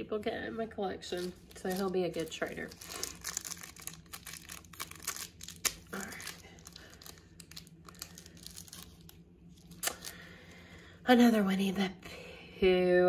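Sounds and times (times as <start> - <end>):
plastic bag crinkling and tearing: 1.0 - 10.5.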